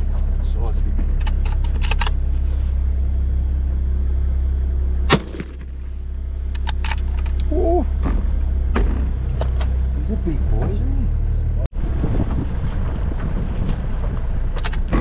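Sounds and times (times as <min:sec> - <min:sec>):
vehicle engine idling: 0:00.0 - 0:15.0
rifle shot: 0:05.1 - 0:05.8.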